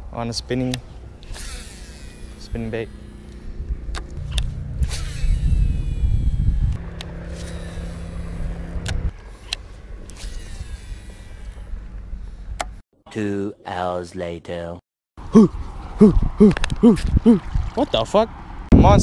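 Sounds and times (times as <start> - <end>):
outboard motor running: 1.0 - 12.6
wind rumble on microphone: 3.6 - 9.2, 15.2 - 19.0.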